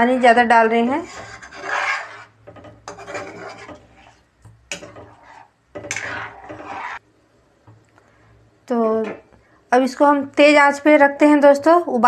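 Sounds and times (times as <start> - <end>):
ladle scraping metal pot: 0.0 - 7.1.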